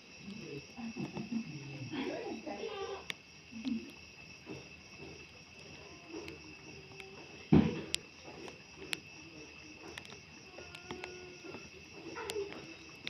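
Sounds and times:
crickets trilling: 0.0s - 13.0s
loud thump: 7.5s - 7.9s.

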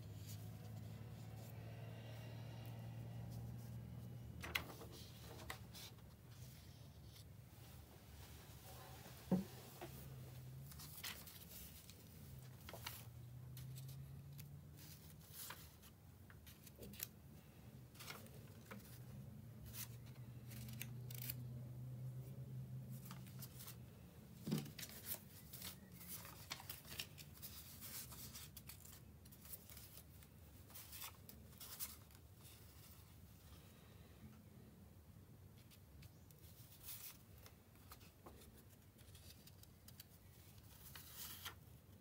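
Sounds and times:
paper rustling: 4.4s - 7.3s, 9.6s - 17.2s, 17.9s - 19.0s, 19.6s - 21.5s, 24.4s - 33.2s, 35.6s - 41.6s.

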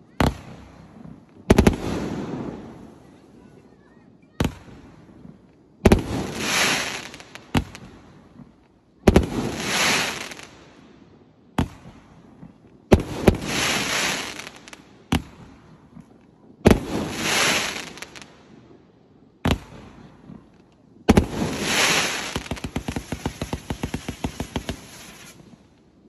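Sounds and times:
fireworks bangs: 0.2s - 3.0s, 4.4s - 8.5s, 11.5s - 18.3s, 19.4s - 25.8s
fireworks hissing crackle: 5.9s - 10.7s, 11.6s - 18.4s, 21.1s - 25.9s.

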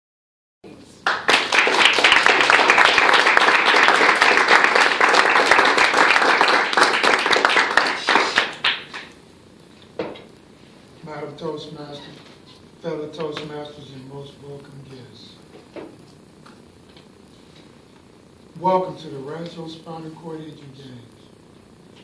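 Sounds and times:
small group applauding: 1.0s - 9.2s.

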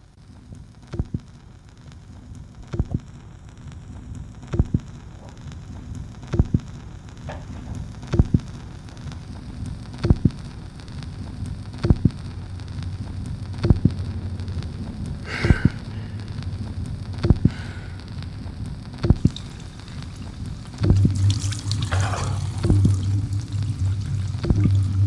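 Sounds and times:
vinyl crackle and hiss: 0.0s - 25.0s
vinyl record pops: 0.4s - 25.0s.

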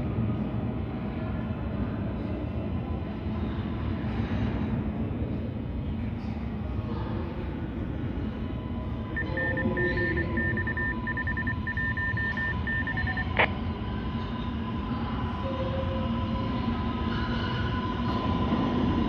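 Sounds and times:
low rumble with faint hum: 0.0s - 19.0s
high electronic beeps: 9.2s - 13.5s.

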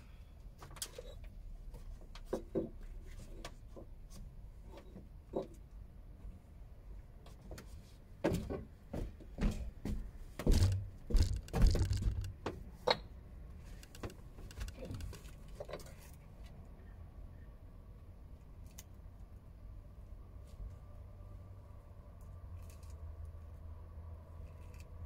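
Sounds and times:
bricks knocking and scraping: 10.4s - 12.4s.

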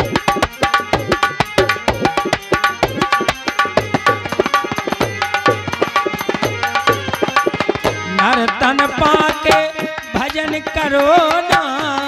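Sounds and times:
hand drum fast rhythm: 0.0s - 12.0s
person singing: 7.9s - 12.0s.

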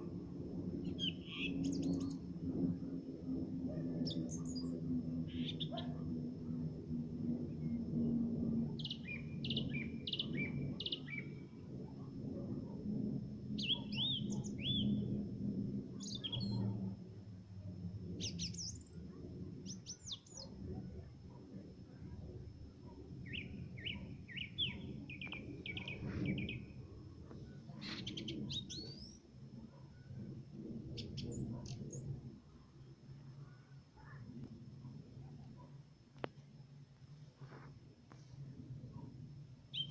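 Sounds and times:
low steady rumble: 0.0s - 39.9s
nightingale singing: 0.8s - 2.2s, 5.3s - 5.9s, 8.8s - 11.4s, 13.6s - 15.1s, 16.0s - 16.7s, 23.2s - 26.7s.

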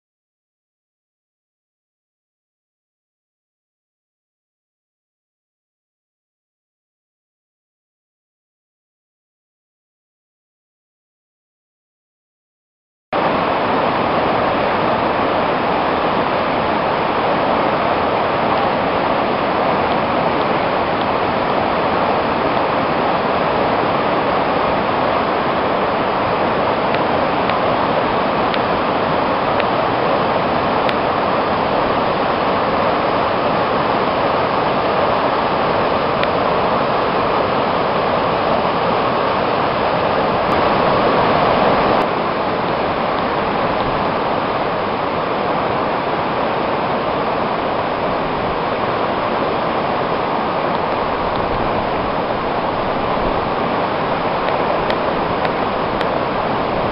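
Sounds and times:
floodwater rushing and churning: 13.2s - 56.9s.

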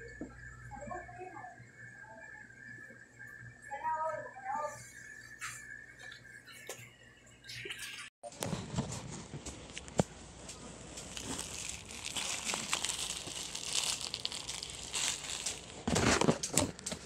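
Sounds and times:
plastic packaging crinkling: 10.0s - 17.0s.

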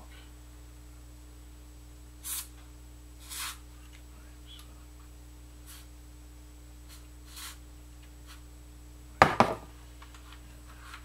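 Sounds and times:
aerosol spray hissing: 2.2s - 2.6s, 3.2s - 3.6s, 5.6s - 5.9s, 6.9s - 7.6s, 8.2s - 8.4s.

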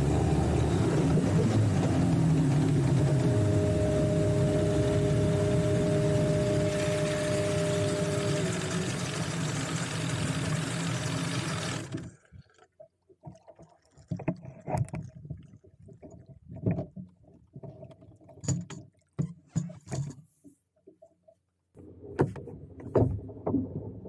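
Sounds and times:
outboard motor idling: 0.0s - 12.7s
water lapping against hull: 0.0s - 24.0s.

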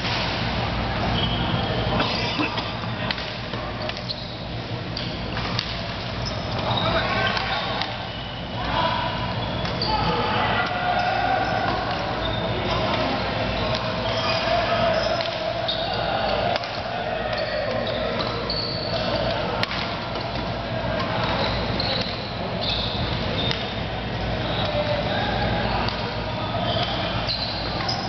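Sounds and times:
rackets hitting shuttlecock: 0.0s - 0.7s, 3.1s - 4.1s, 4.9s - 6.6s, 16.4s - 22.3s
shoes squeaking on floor: 3.8s - 5.1s, 6.1s - 8.4s, 14.0s - 15.9s, 17.4s - 19.2s, 21.1s - 24.9s, 26.6s - 28.0s.

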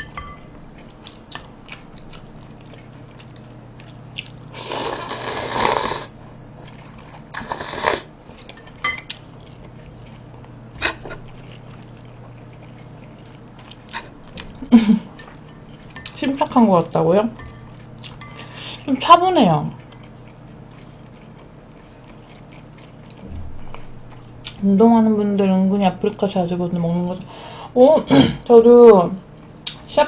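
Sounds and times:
chewing: 0.7s - 5.9s, 6.6s - 7.6s, 8.3s - 10.6s, 11.2s - 14.6s, 17.6s - 18.8s, 19.7s - 24.6s
noodles being slurped: 4.6s - 6.1s.

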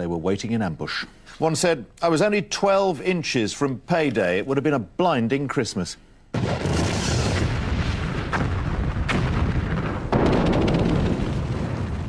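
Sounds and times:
deep rumble of rock blasting: 6.4s - 12.0s
sharp cracks: 6.4s - 12.0s.

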